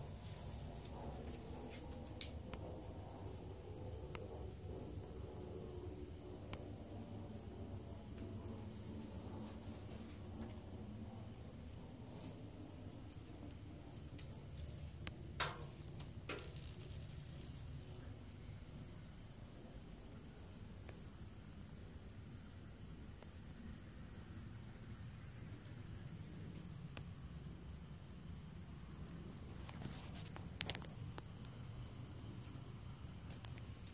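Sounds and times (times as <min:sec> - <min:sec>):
crickets trilling: 0:00.0 - 0:33.9.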